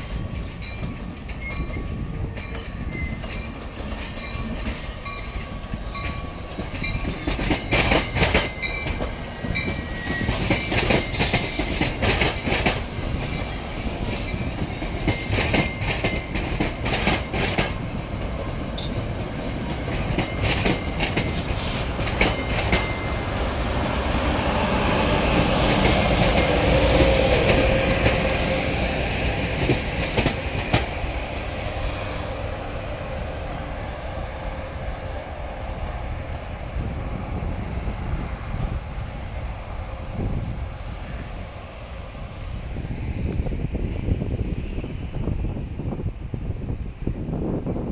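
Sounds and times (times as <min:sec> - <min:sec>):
train wheels clicking over rail joints: 0:00.0 - 0:32.5
light wheel squeal: 0:09.3 - 0:11.8.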